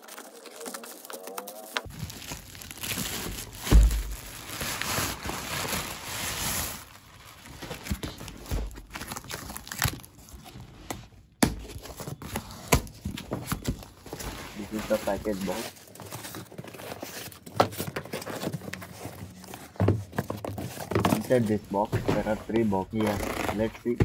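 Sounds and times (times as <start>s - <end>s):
plastic wrapping crinkling: 0.0s - 10.4s, 13.4s - 24.0s
loud thump: 3.7s - 4.2s
cardboard box knocks and scrapes: 19.6s - 22.6s.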